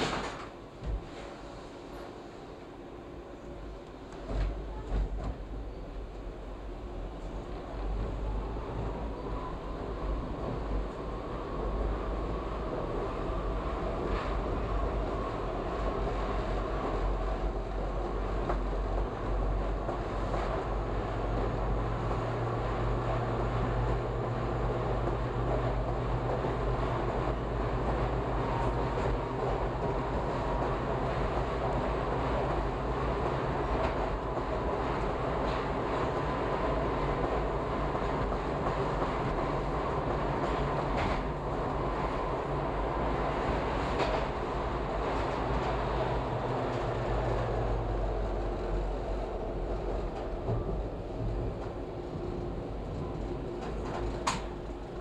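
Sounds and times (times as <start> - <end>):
wheels rumbling on rail: 0.0 - 55.0
sharp clicks from track: 53.6 - 54.6.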